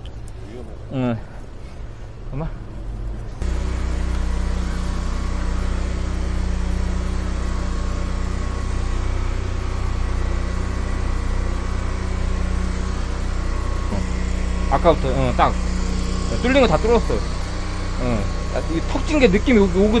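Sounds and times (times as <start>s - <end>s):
sewer jetter engine droning: 0.0s - 20.0s.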